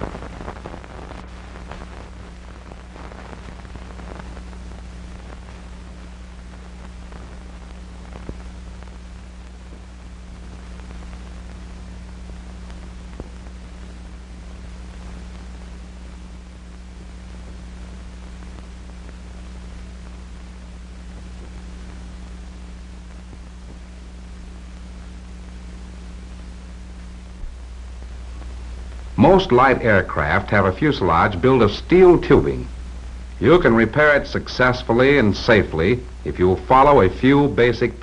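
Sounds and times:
film hiss and crackle: 0:00.0 - 0:38.0
low hum: 0:00.0 - 0:38.0.

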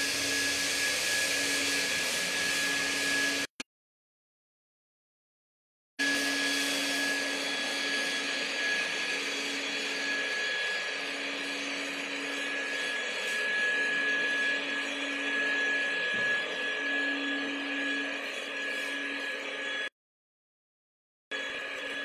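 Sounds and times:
fogger motor hum and whine: 0:06.0 - 0:19.9.

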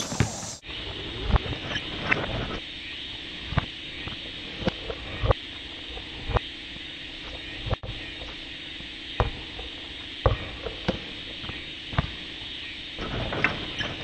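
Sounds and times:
basketball bouncing on asphalt: 0:00.0 - 0:00.6, 0:09.2 - 0:12.2.

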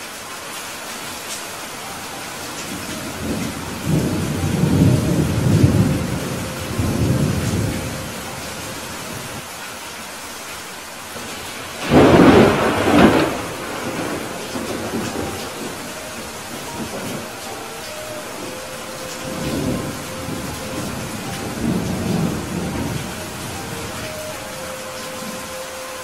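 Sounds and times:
rain hissing: 0:00.0 - 0:26.0
low rolling thunder: 0:02.7 - 0:09.4, 0:11.2 - 0:24.2
sharp thunderclap: 0:11.8 - 0:15.7.

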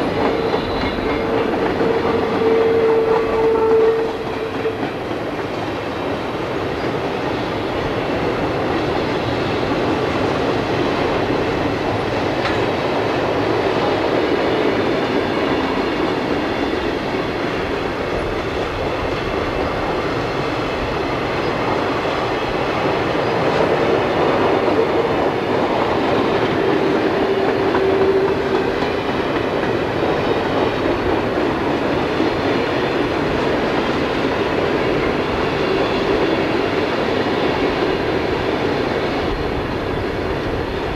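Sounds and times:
freight train wheels rumbling on rails: 0:00.0 - 0:40.9.

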